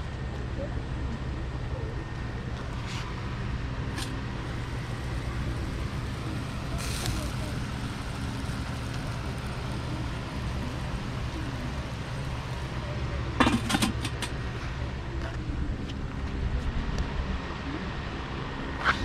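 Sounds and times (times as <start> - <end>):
steady low rumble: 0.0 - 18.8.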